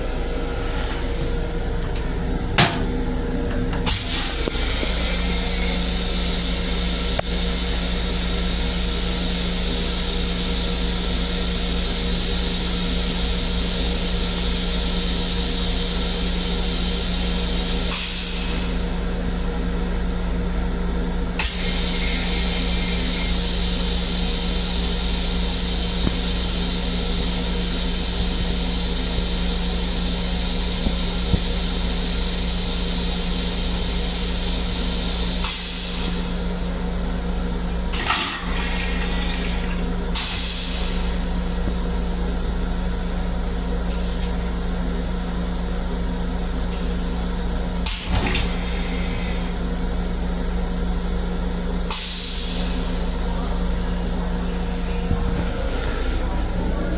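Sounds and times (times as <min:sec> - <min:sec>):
constant low rumble: 0:00.0 - 0:56.9
toilet flush motor hissing: 0:02.7 - 0:20.6, 0:21.2 - 0:56.9.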